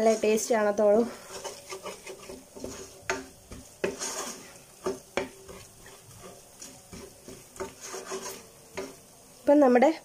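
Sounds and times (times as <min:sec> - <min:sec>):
wooden spatula scraping pot: 0:00.0 - 0:09.1
paste sizzling in oil: 0:00.0 - 0:10.0.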